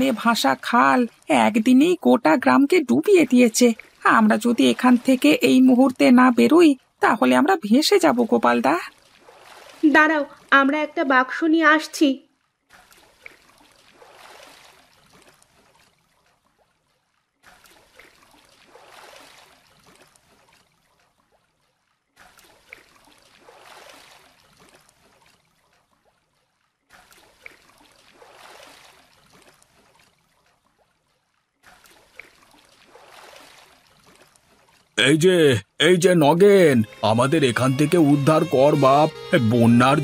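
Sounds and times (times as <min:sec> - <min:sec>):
oar strokes swishing through water: 0:03.7 - 0:05.4, 0:08.8 - 0:10.5, 0:12.4 - 0:35.0.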